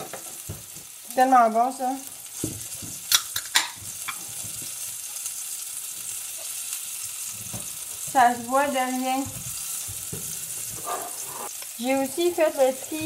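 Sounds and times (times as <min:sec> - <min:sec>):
food sizzling in a pan: 0:00.0 - 0:13.0.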